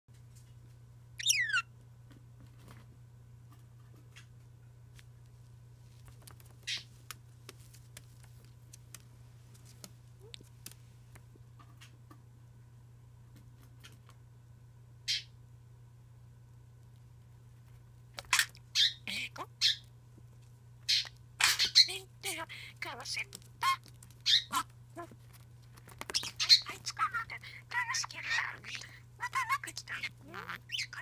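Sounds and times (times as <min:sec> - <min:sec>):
steady low hum: 0:00.1 - 0:31.0
shrill parrot calls: 0:01.2 - 0:01.7, 0:15.1 - 0:15.3, 0:18.3 - 0:19.8, 0:20.9 - 0:21.9, 0:23.6 - 0:24.6, 0:26.1 - 0:31.0.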